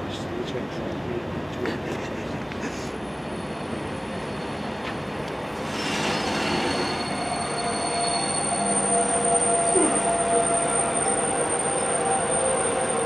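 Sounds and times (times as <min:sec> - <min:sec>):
train running noise: 0:00.0 - 0:13.0
wheels squealing on rails: 0:02.9 - 0:13.0.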